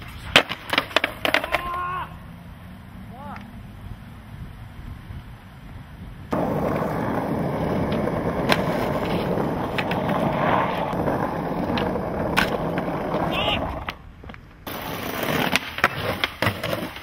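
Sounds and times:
skateboard wheels rumbling on asphalt: 0.0 - 17.0
wheels clicking over cracks: 6.3 - 17.0.

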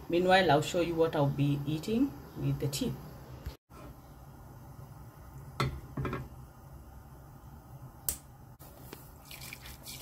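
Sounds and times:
kitchen clicks and taps: 5.6 - 6.3.

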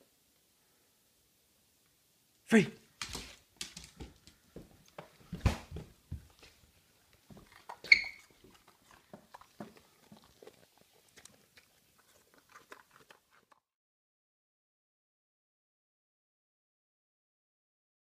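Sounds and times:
dog crunching carrot: 3.0 - 13.7.

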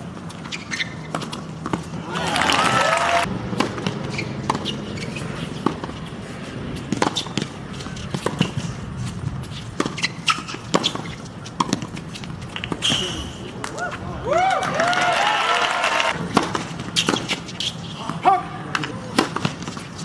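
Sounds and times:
shoes squeaking on court: 0.0 - 2.0, 3.5 - 14.0, 16.2 - 20.0
tennis ball bouncing: 0.0 - 2.6, 3.2 - 12.9, 16.2 - 20.0
racket striking tennis ball: 0.2 - 2.0, 3.5 - 13.8, 16.2 - 20.0.

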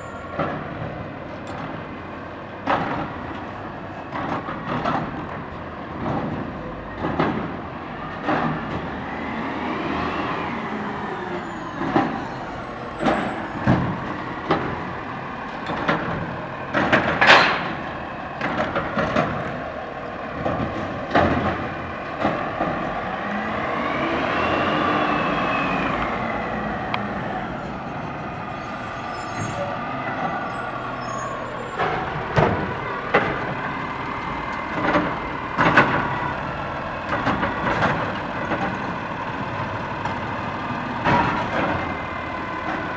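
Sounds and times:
metal clanks and knocks: 15.5 - 19.6, 20.3 - 22.9, 34.5 - 36.1
truck engine revving with whine: 20.7 - 42.9.

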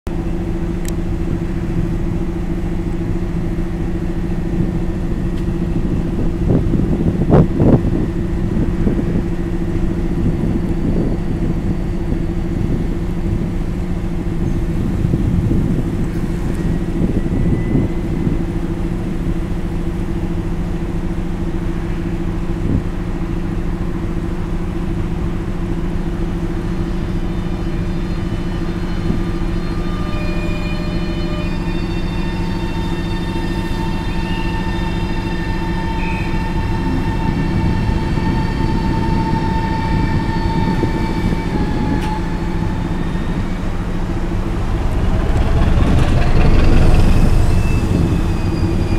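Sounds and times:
diesel locomotive engine idling: 0.1 - 48.9.

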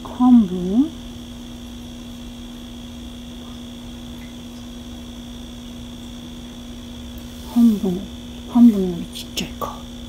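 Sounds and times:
machine hum: 0.0 - 10.0
thin high whine: 0.0 - 10.0.

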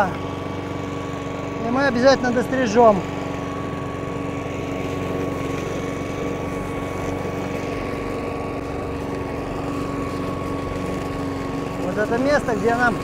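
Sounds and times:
lawn mower engine running: 0.0 - 13.0.

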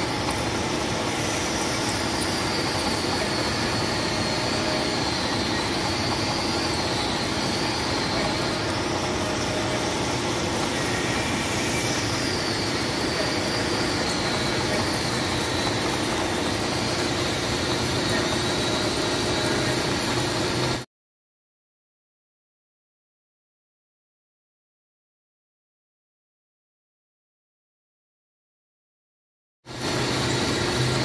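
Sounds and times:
milling machine cutting metal: 0.0 - 20.8, 29.7 - 31.0.

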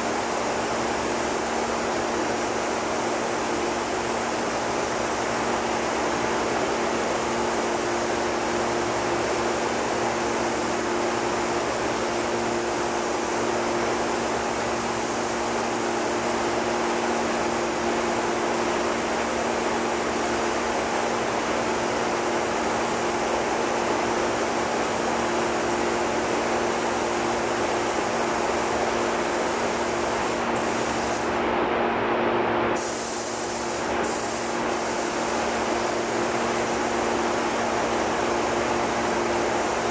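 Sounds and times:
paint spray gun hissing: 0.0 - 31.4, 32.8 - 39.9.

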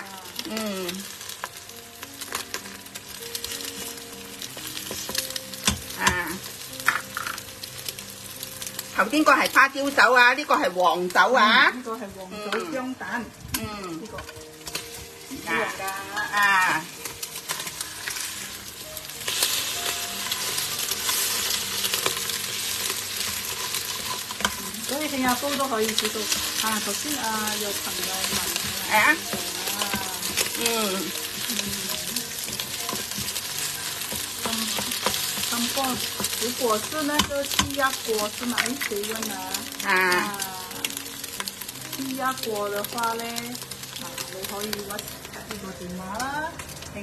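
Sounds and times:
eggs sizzling in oil: 0.0 - 47.0
spatula scraping a pot: 20.2 - 27.0
spatula scraping pot: 20.2 - 39.0.

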